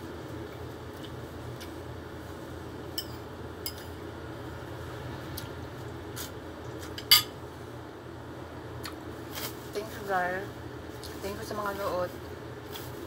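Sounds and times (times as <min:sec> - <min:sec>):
low background hum: 0:00.0 - 0:13.0
metal spoon clinking against dish: 0:07.0 - 0:07.4.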